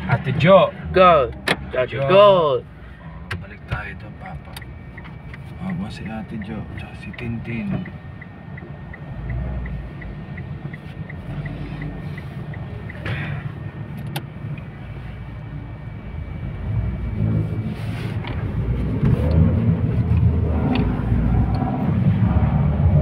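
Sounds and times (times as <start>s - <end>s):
car engine and road noise: 0.0s - 23.0s
turn signal ticking: 3.2s - 17.2s, 18.2s - 21.8s.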